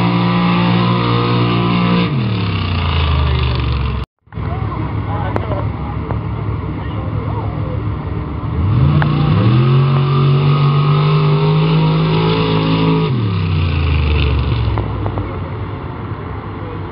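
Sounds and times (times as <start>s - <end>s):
truck engine revving at full throttle: 0.0s - 16.6s.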